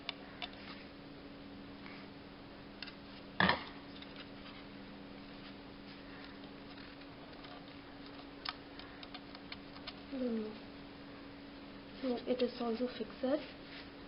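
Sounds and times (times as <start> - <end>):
steady low hum: 0.0 - 14.0
small plastic clicks: 6.2 - 10.0.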